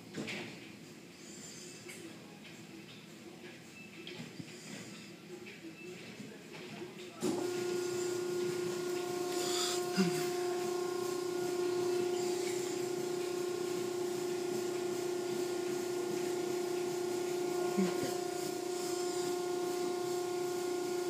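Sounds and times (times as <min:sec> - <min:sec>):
motor hum: 0:07.2 - 0:21.0
water spraying hiss: 0:07.3 - 0:21.0.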